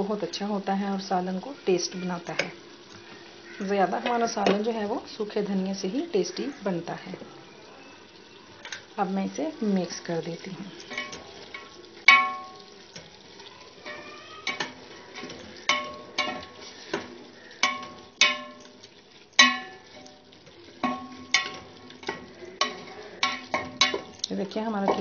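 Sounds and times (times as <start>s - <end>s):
spoon stirring meat in pot: 10.3s - 25.0s
spoon clanging on metal pot: 10.8s - 13.1s, 13.8s - 25.0s.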